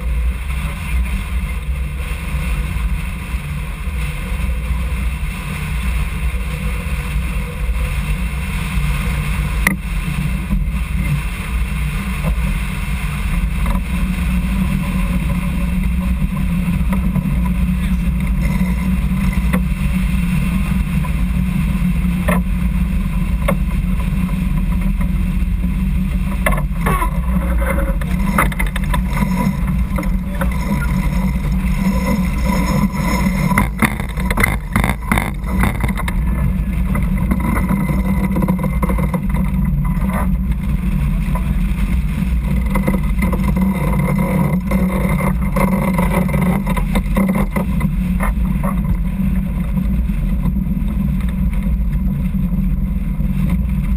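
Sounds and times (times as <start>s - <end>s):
low rumble aboard yacht: 0.0s - 53.9s
sharp knocks and clicks: 32.0s - 40.3s.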